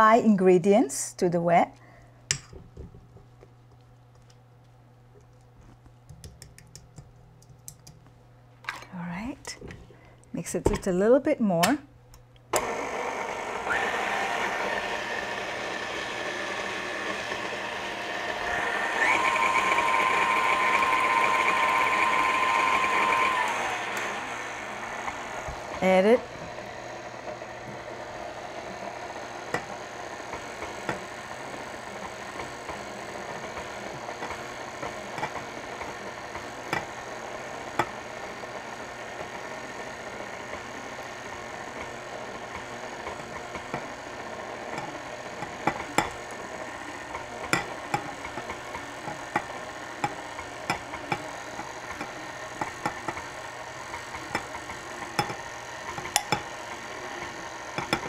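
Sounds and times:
stand mixer running: 12.5 - 58.0.

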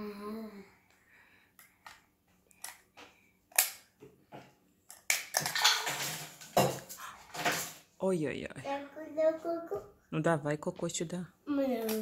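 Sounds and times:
rustling and clatter: 5.4 - 7.9.

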